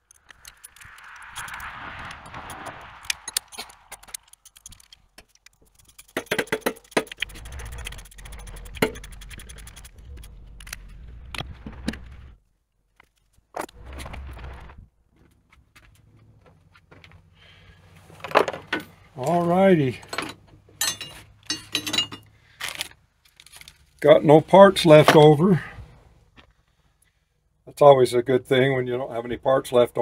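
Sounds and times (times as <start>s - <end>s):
low rumble: 0.0s - 6.1s, 7.2s - 12.4s
wrenches clinking on metal: 19.9s - 23.9s.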